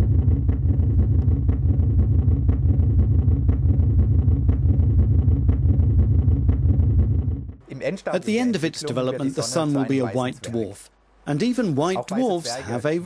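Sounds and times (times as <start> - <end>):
deep rumbling drone: 0.0 - 7.7.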